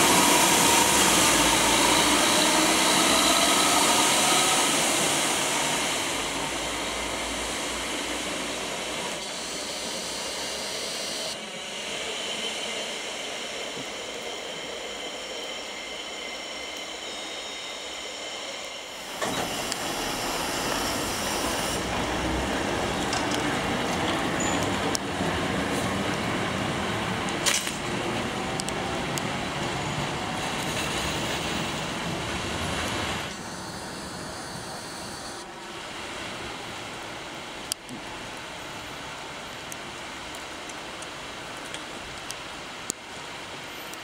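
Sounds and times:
diesel railcar engine pulling away: 0.0 - 36.7
electric railcar rolling past: 0.0 - 41.4
distant train: 0.0 - 44.0
sharp clicks of railcar: 22.9 - 26.3, 27.2 - 28.0.

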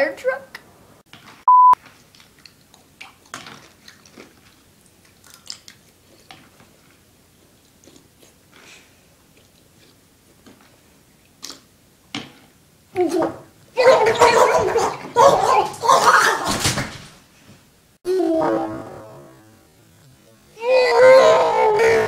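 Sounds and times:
chewing: 1.8 - 11.7.

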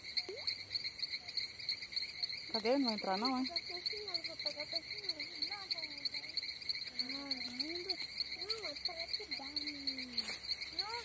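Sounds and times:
frogs and insects calling: 0.0 - 11.0.

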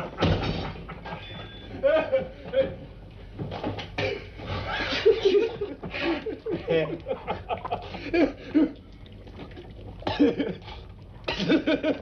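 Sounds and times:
men laughing: 0.8 - 2.9, 4.5 - 8.8, 10.1 - 12.0.

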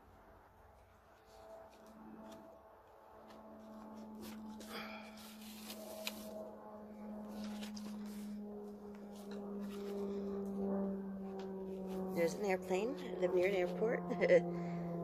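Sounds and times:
airplane droning overhead: 0.0 - 15.0
paper and twine rustling: 3.2 - 6.4, 7.3 - 8.3.

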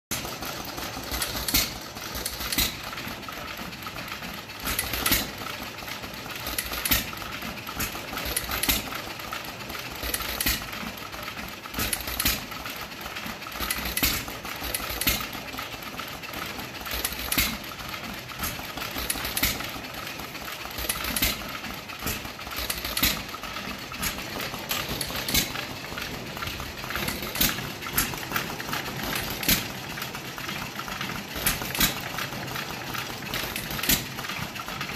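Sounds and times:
engine exhaust pops: 0.1 - 3.0, 10.1 - 10.7, 13.6 - 15.3, 17.0 - 17.7, 20.7 - 29.9
engine mechanical clatter: 0.1 - 34.9.

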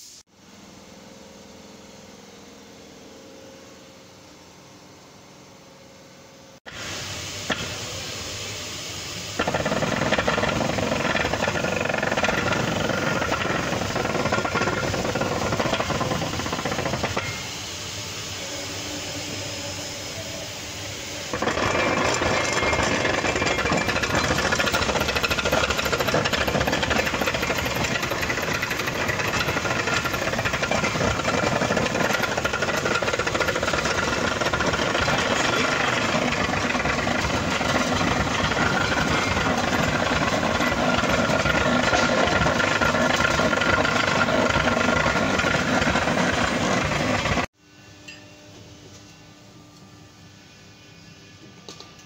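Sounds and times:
loud mechanical rattle of drivetrain: 9.4 - 17.2, 21.3 - 47.5.

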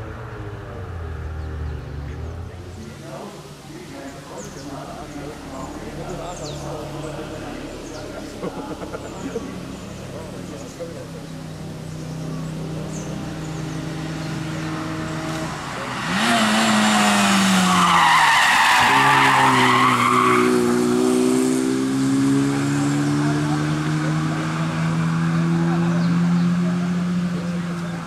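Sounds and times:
race car engine: 0.0 - 28.0
tyres squealing: 15.5 - 20.7.

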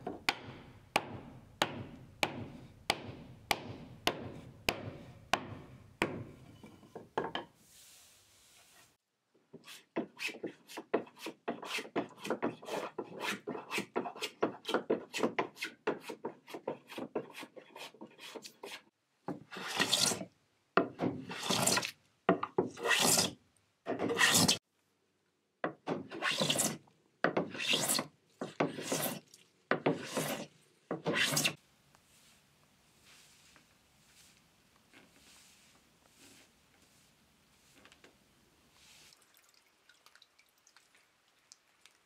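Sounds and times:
hand plane shaving wood: 9.6 - 18.8, 19.5 - 20.3, 21.2 - 21.9, 22.8 - 24.6, 26.1 - 26.8, 27.4 - 29.2, 29.8 - 31.6.

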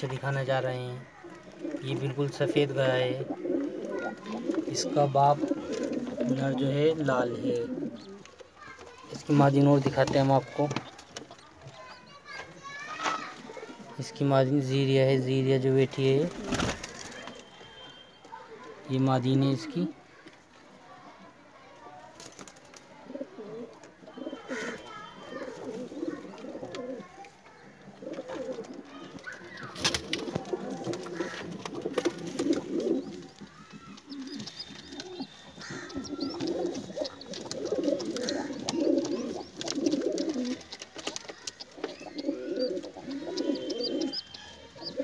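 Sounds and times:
pigeons cooing: 0.0 - 8.6, 22.9 - 45.0
faint high chirps: 17.0 - 18.7, 24.0 - 27.6, 41.4 - 45.0.

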